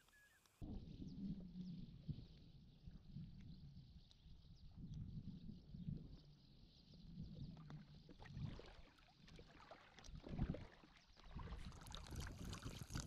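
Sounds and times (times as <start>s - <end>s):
water lapping and sloshing: 7.7s - 13.0s.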